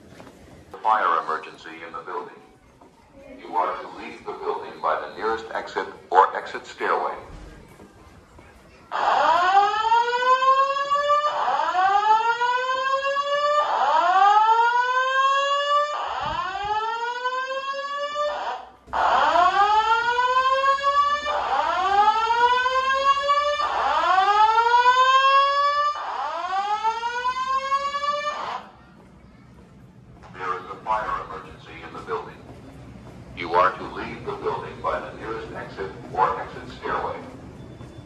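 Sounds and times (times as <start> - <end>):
fire alarm whoop tone: 8.9 - 28.7.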